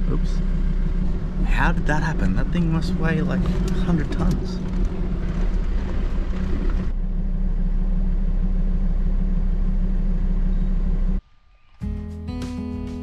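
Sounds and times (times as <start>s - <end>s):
vehicle engine and tyres on dirt: 0.0s - 11.5s.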